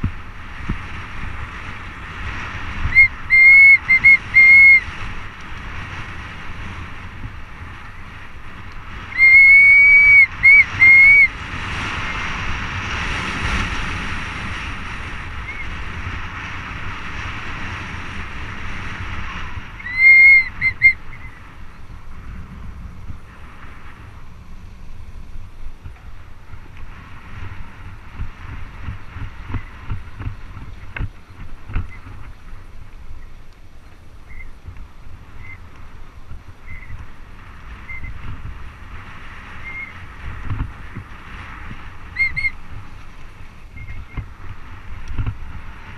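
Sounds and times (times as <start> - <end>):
tyres rolling on dirt trail: 0.0 - 45.9
wind on microphone: 0.0 - 45.9
bike brakes squealing: 2.9 - 4.9, 9.1 - 11.3, 19.8 - 21.4, 39.6 - 40.0, 42.2 - 42.6.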